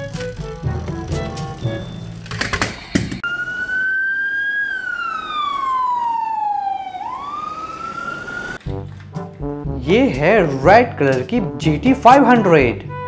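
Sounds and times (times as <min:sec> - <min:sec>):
background music: 0:00.0 - 0:02.6, 0:08.6 - 0:13.0
toy police siren wailing: 0:03.2 - 0:08.6.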